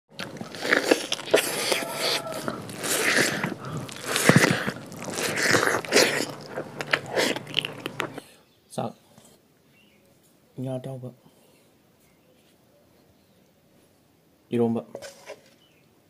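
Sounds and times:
crunchy bites and chewing: 0.1 - 8.3.

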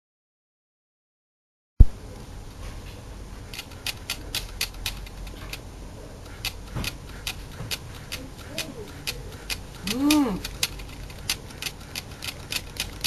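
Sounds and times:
sharp irregular clicks: 3.5 - 5.6, 6.2 - 13.0.

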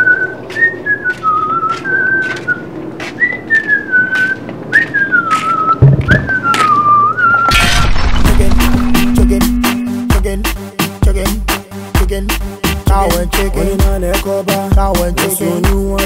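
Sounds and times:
person whistling a tune: 0.0 - 2.6, 3.2 - 7.5
low thud: 5.8 - 6.5.

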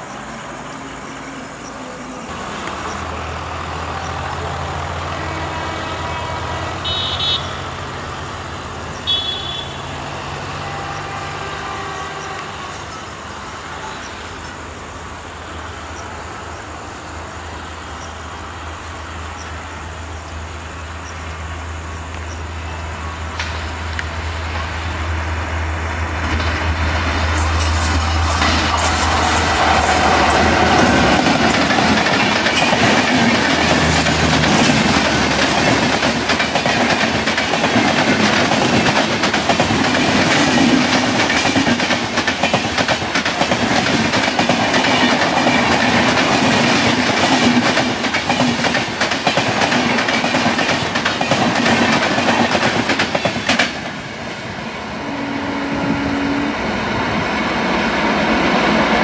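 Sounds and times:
low train rumble: 0.0 - 59.0
train wheels clattering over rail joints: 26.2 - 54.0.

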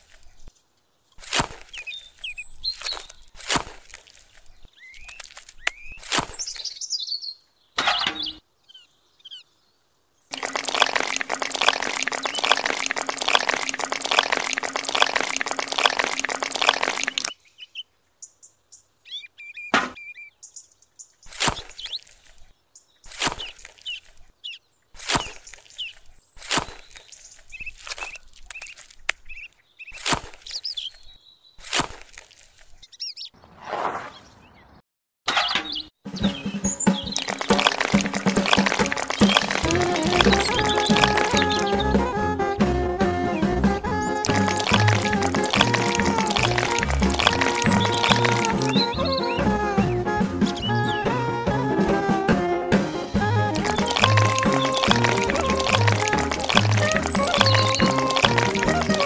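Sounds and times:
bird chirping: 0.1 - 3.4, 4.2 - 31.7, 32.7 - 34.8, 35.4 - 42.1, 43.4 - 51.2, 53.5 - 59.0
shovel scraping wet cement: 1.2 - 1.8, 21.3 - 21.9, 23.1 - 23.7, 37.1 - 41.7, 44.0 - 48.8, 53.4 - 59.0.

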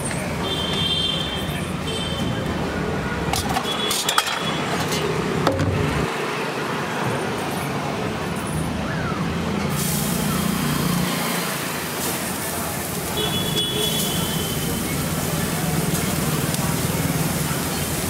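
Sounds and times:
street traffic noise: 0.0 - 18.0
metal utensils clinking: 3.3 - 5.2
hiss: 9.7 - 18.0.

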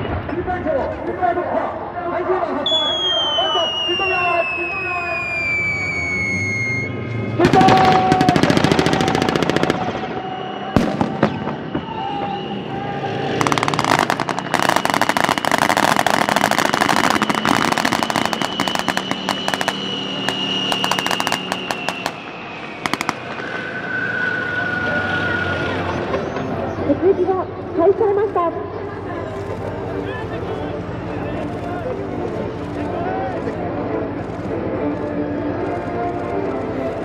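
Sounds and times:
steady high tone: 2.6 - 7.5
rifle and machine gun fire: 7.4 - 10.2, 13.4 - 22.2.

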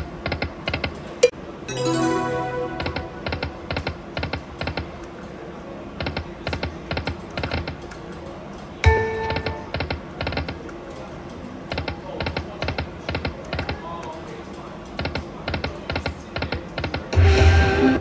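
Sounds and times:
loud chime: 1.7 - 3.7.

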